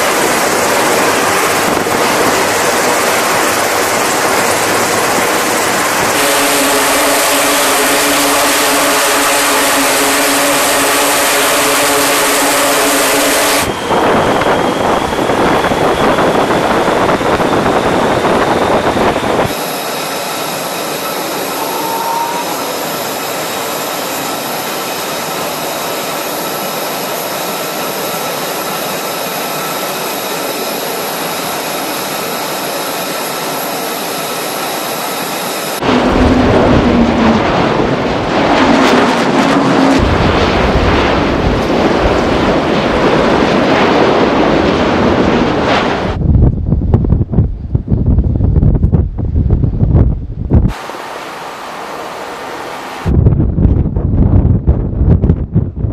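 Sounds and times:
wind rushing: 0.0 - 8.5, 13.6 - 26.0, 35.4 - 55.9
high whine of jet engines: 0.0 - 55.9
steady engine tones: 0.0 - 55.9.

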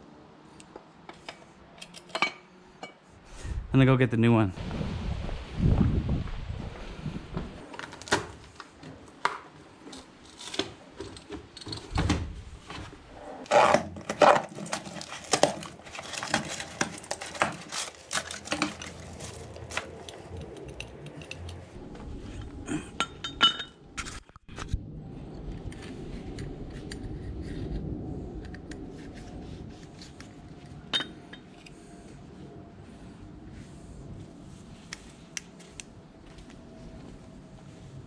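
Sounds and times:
metal tools clinking: 13.6 - 21.8.

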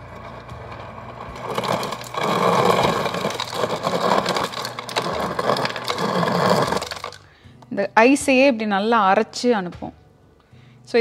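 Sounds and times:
ice crusher grinding ice: 0.0 - 7.3
crushed ice rattling: 0.7 - 7.3.

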